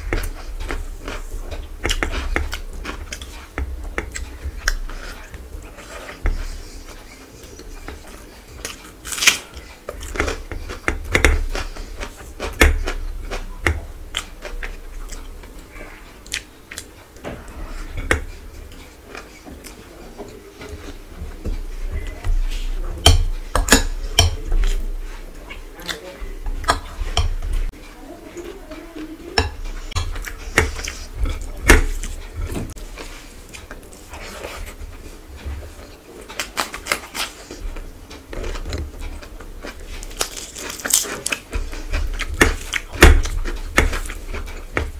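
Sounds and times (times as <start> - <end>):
chewing: 0.0 - 44.9
fingers mixing rice: 0.0 - 44.9
tearing meat from chicken: 40.0 - 41.4.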